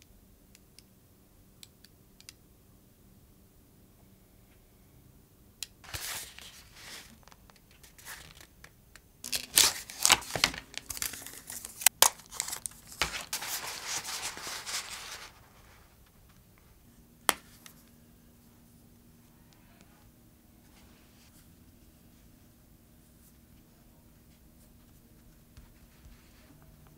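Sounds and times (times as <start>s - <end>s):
paper wrapper crinkling: 5.8s - 8.7s, 9.3s - 16.2s.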